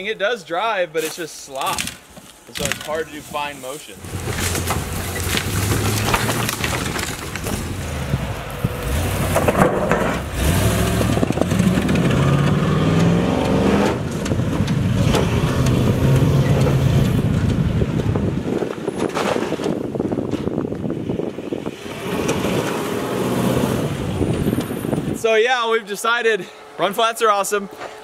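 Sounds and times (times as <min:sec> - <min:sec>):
tires rumbling over loose dirt: 0:01.6 - 0:25.7
engine revving: 0:04.0 - 0:18.0, 0:21.6 - 0:25.1.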